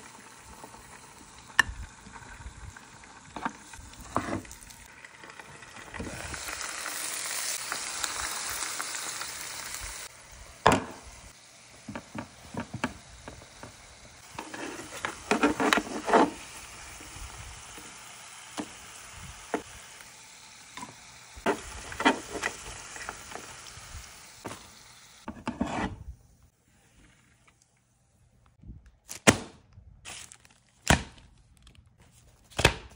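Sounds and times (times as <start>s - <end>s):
fries sizzling in hot oil: 0.0s - 25.6s.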